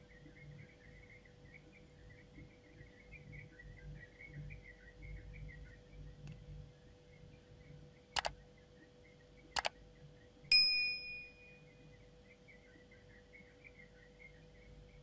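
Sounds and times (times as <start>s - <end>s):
mouse clicks: 8.2s - 8.4s, 9.6s - 9.8s
notification bell ding: 10.5s - 11.4s.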